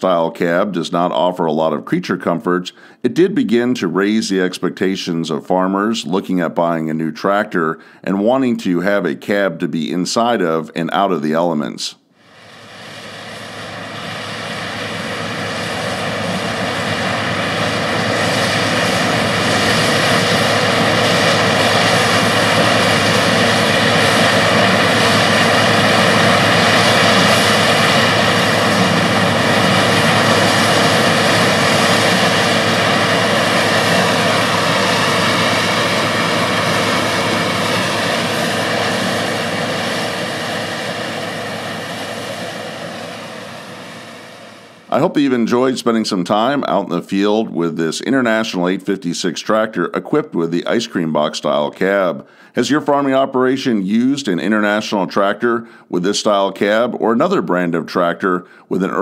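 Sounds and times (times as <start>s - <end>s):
tractor engine drone: 12.3s - 47.6s
corn picking machinery noise: 12.6s - 42.6s.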